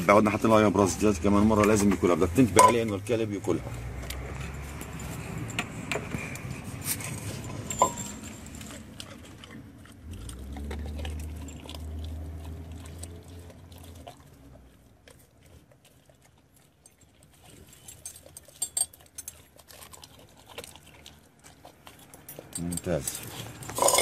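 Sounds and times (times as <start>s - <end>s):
dog chewing and crunching: 0.0s - 24.0s.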